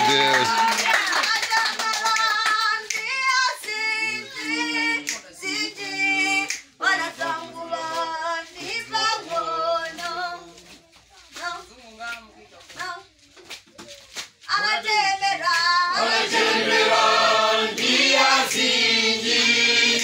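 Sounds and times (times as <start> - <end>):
hand clapping: 0.0 - 5.3, 6.4 - 6.7, 17.7 - 20.0
women and children singing: 0.4 - 13.1, 14.4 - 20.0.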